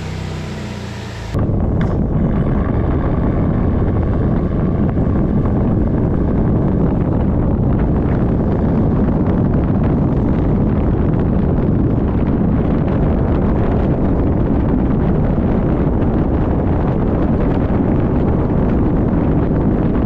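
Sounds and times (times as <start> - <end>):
car driving noise: 0.0 - 20.0
wind buffeting microphone: 0.0 - 20.0.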